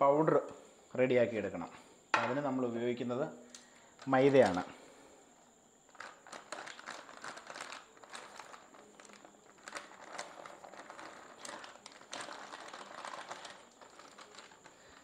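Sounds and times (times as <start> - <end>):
flour rustling and crinkling: 5.9 - 15.0.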